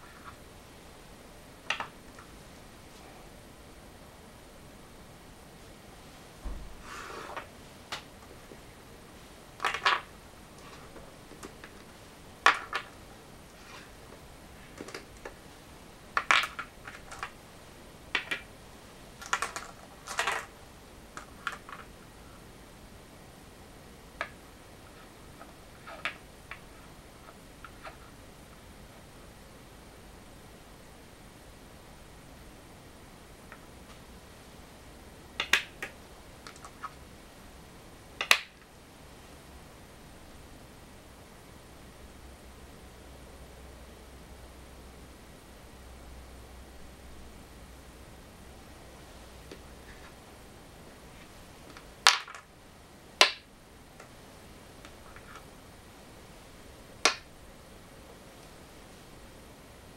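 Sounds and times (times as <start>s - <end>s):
go stones clacking on wooden board: 9.6s - 10.1s.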